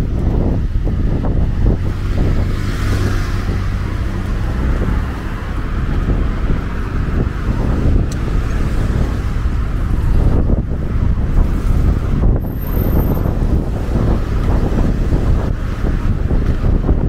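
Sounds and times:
cars driving by: 0.0s - 17.0s
wind rumble on microphone: 0.0s - 17.0s.

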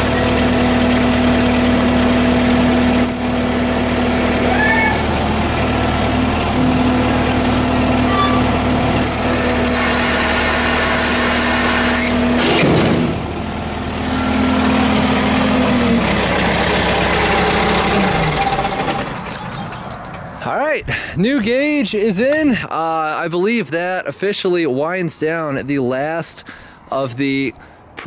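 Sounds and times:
tractor engine running: 0.0s - 22.7s
loud hiss: 9.6s - 12.3s.

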